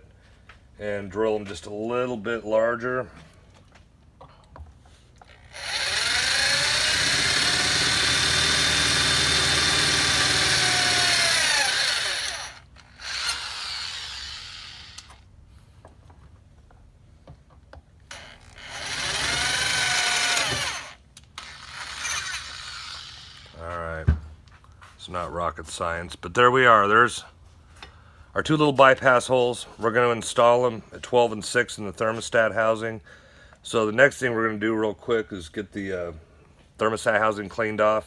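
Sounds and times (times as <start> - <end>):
electric drill whining: 5.3 - 15.2, 18.1 - 23.6.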